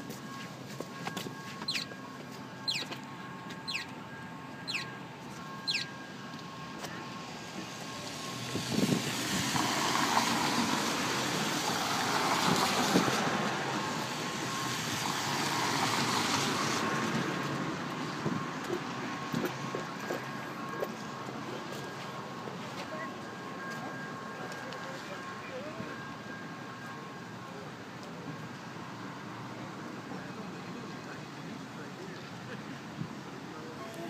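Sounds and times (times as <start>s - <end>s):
high falling chirp: 5.6s - 6.0s
tyres hissing on wet street: 6.5s - 34.0s
faint steady tone: 13.4s - 34.0s.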